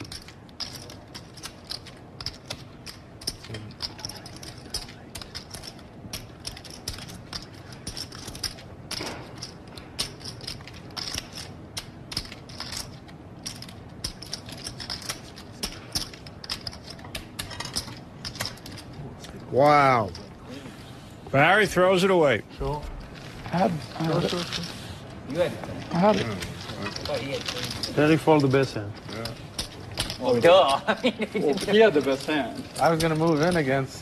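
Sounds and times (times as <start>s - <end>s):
poker chips clicking together: 0.0s - 19.0s.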